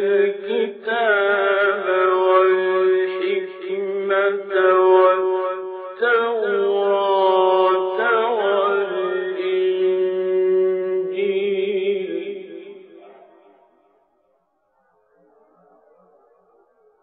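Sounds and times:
man reciting melodically: 0:00.0 - 0:13.3.

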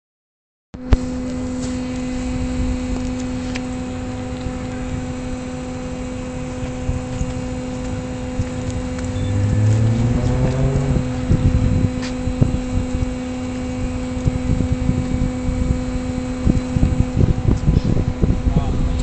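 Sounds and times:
machine hum: 0:00.8 - 0:19.0
engine pitch rising: 0:01.3 - 0:14.7.

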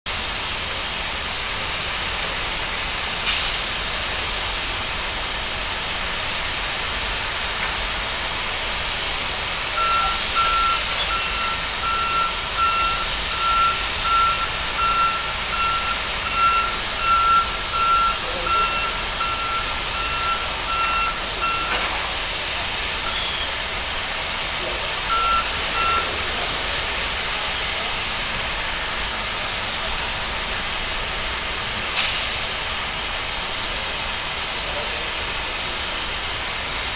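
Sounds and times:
high warning beeps: 0:09.8 - 0:21.9, 0:25.1 - 0:26.2.

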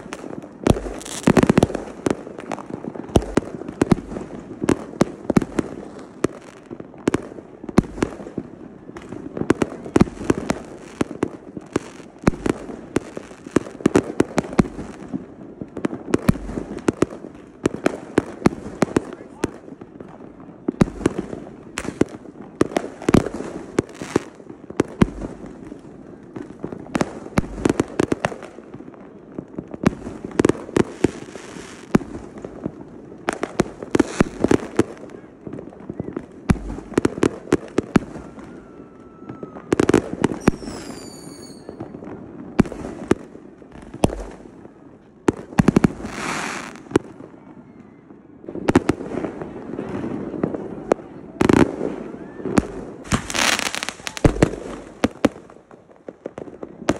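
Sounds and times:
fireworks crackling hiss: 0:00.0 - 0:44.6, 0:45.3 - 0:47.1, 0:51.4 - 0:56.9
fireworks bursting: 0:00.0 - 0:47.8, 0:48.4 - 0:56.9
falling whistles: 0:40.4 - 0:41.9.

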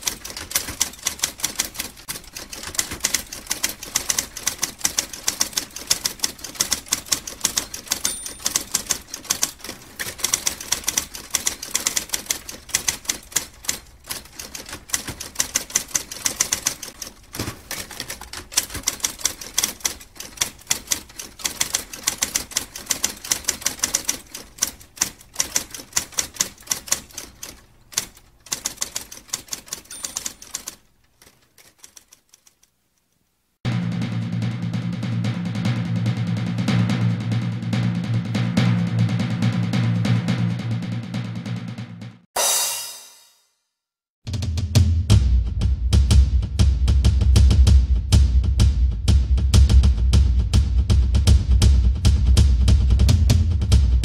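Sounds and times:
typewriter keys clacking: 0:00.0 - 0:33.1.

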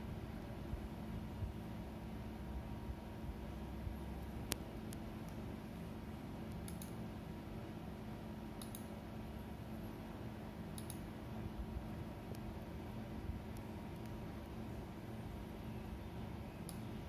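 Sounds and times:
steady low hum: 0:00.0 - 0:17.0
computer mouse clicks: 0:06.5 - 0:07.0, 0:08.6 - 0:09.0, 0:10.7 - 0:11.1, 0:13.5 - 0:14.6, 0:16.6 - 0:16.9.

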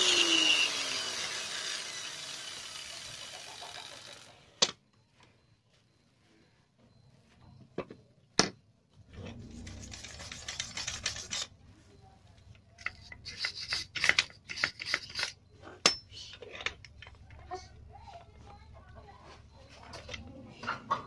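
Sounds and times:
scrapes and clinks: 0:09.0 - 0:20.4
metal jack scraping on concrete: 0:09.1 - 0:11.5, 0:12.8 - 0:15.4.

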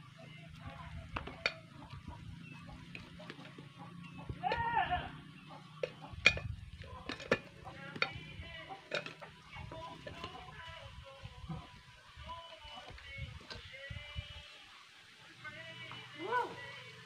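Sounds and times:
goat bleating: 0:04.4 - 0:05.2.

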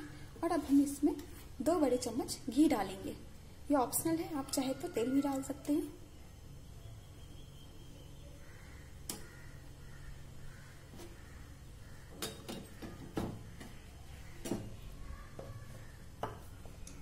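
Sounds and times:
low steady hum: 0:00.0 - 0:17.0
ghee popping and clicking: 0:09.0 - 0:09.4.

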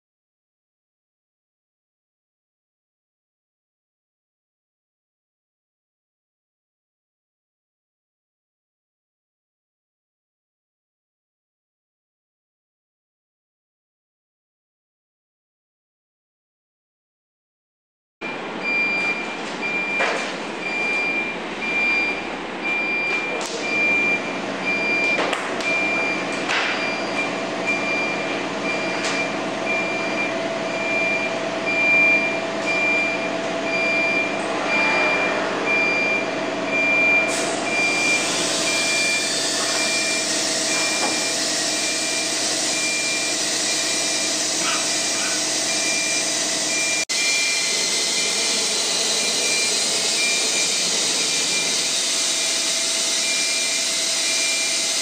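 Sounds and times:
pulsed high beep: 0:18.3 - 0:48.4, 0:49.1 - 0:52.4, 0:53.2 - 0:54.8
router machine running: 0:37.3 - 0:55.0.

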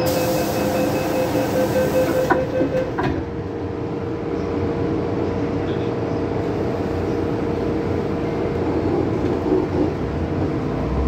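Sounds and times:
hiss: 0:00.0 - 0:02.2
rapid repeated warning beeps: 0:00.0 - 0:02.9
train hum: 0:00.0 - 0:11.0.

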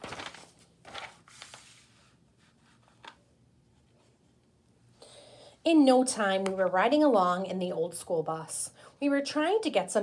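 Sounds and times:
book page turning: 0:00.0 - 0:03.2.

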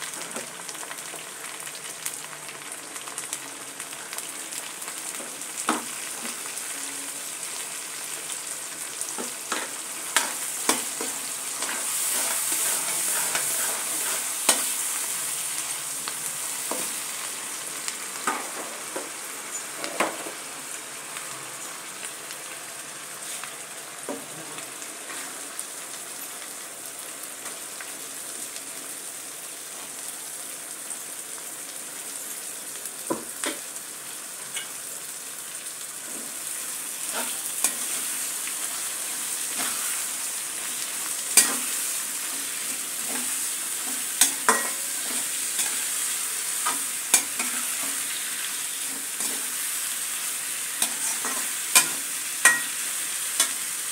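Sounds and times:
cabbage sizzling in a pan: 0:00.0 - 0:53.9
utensil scraping a pan: 0:10.2 - 0:14.7.

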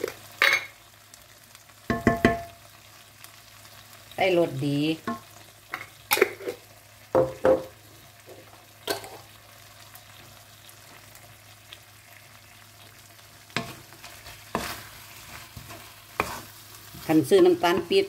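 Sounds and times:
faint sizzling: 0:00.0 - 0:18.0
wooden spatula scraping a wok: 0:13.5 - 0:18.0.

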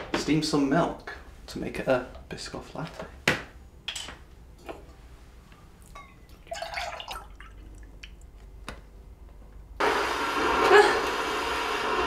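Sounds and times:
milk pouring into metal jug: 0:06.5 - 0:07.8.

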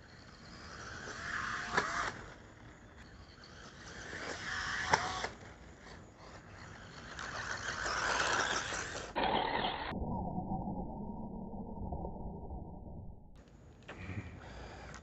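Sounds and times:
rc truck motor and tyres: 0:00.0 - 0:10.0.

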